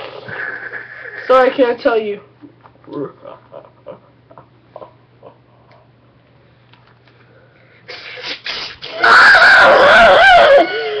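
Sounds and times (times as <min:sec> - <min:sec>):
boy screaming: 0:08.9 - 0:11.0.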